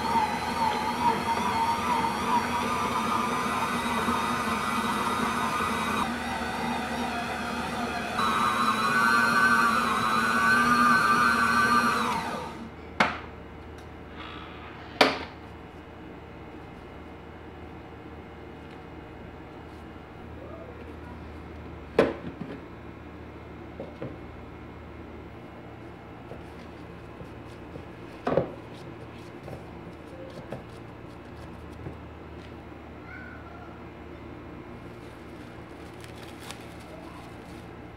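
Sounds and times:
dough worked in mixing bowl: 0:00.0 - 0:12.7
stand mixer motor whine: 0:00.0 - 0:12.7.

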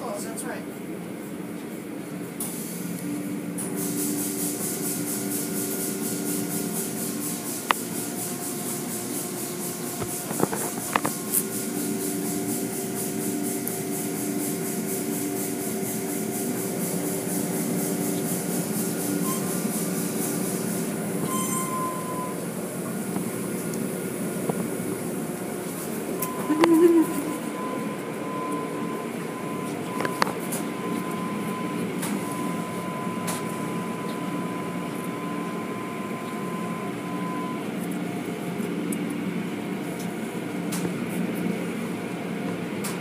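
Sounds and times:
car wash motors humming: 0:00.0 - 0:43.0.

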